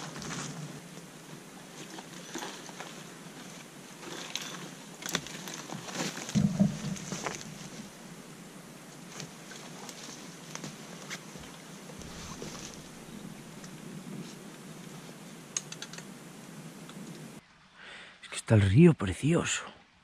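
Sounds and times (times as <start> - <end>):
branches rustling: 0.0 - 17.4
twigs cracking: 4.0 - 8.2, 9.1 - 16.1
low thump: 6.4 - 8.0
footsteps through dry leaves: 12.0 - 13.8.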